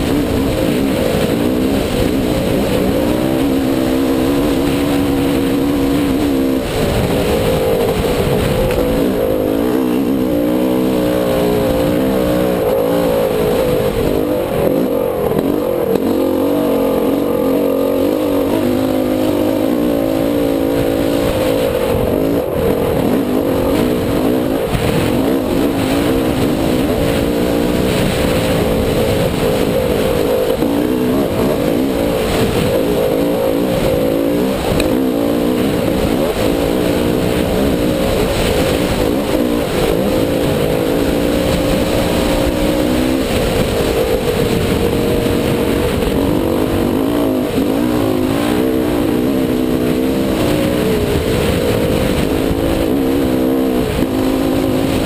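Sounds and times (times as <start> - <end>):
dirt bike engine revving: 0.0 - 55.0
wind on microphone: 0.0 - 55.0.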